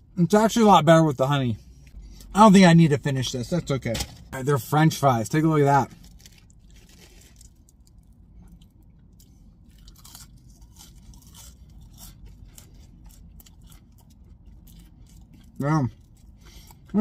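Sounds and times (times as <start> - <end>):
person chewing crunchy food: 6.0 - 17.0.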